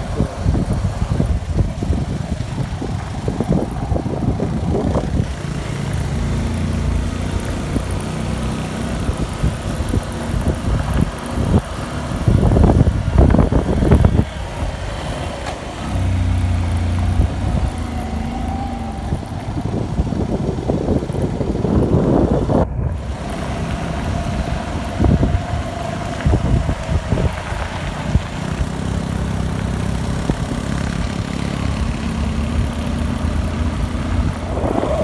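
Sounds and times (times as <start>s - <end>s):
road bumps: 0.0s - 35.0s
small motorbike engine running: 0.0s - 35.0s
wind noise on microphone: 0.0s - 35.0s.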